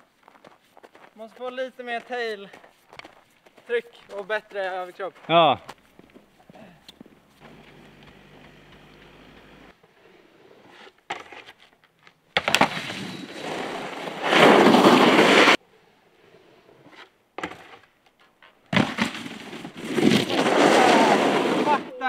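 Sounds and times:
snowboard landing on snow: 0:12.4 - 0:15.6, 0:18.7 - 0:21.9
snowboard scraping across snow: 0:12.6 - 0:15.6, 0:19.2 - 0:22.0.

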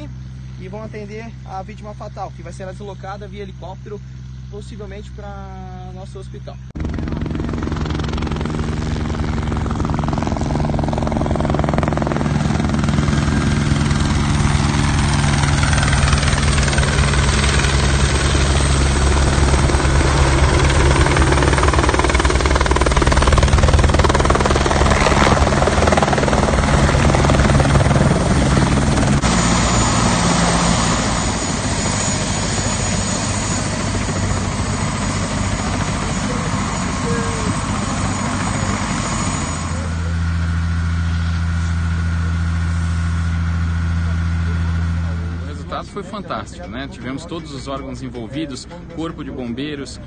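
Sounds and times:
helicopter rotor and turbine: 0:00.0 - 0:50.0
high turbine whine: 0:00.0 - 0:50.0.

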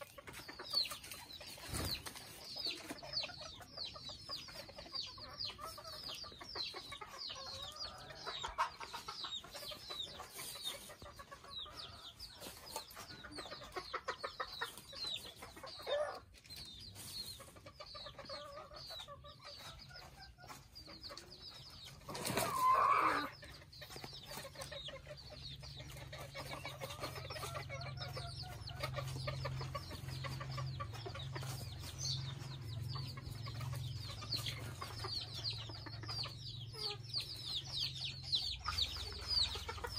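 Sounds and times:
chickens clucking: 0:00.0 - 0:39.9
loud chicken call: 0:22.2 - 0:23.3.

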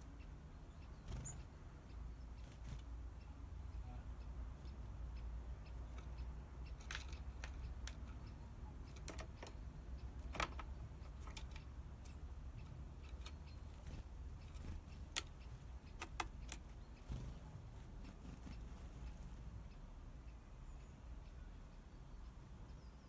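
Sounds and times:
bird tapping on wood and plastic: 0:05.8 - 0:17.3.

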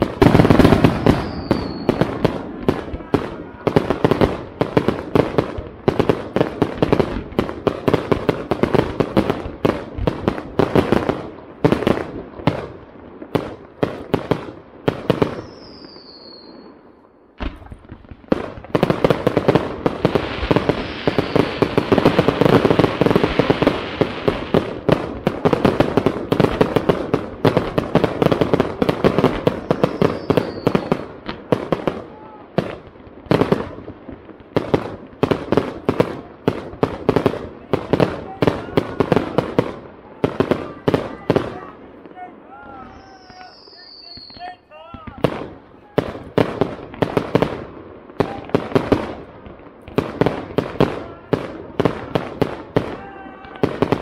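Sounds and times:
falling firework whistle: 0:00.0 - 0:03.7, 0:15.2 - 0:17.8, 0:20.4 - 0:22.3, 0:29.4 - 0:31.1, 0:42.7 - 0:44.7
fireworks bangs and crackle: 0:00.0 - 0:54.0.

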